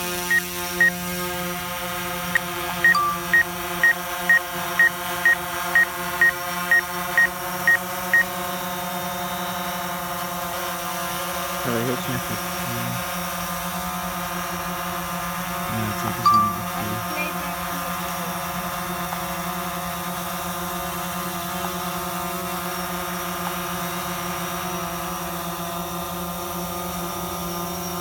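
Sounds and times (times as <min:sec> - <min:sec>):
short high electronic beeps: 0:02.8 - 0:04.9, 0:15.9 - 0:17.4.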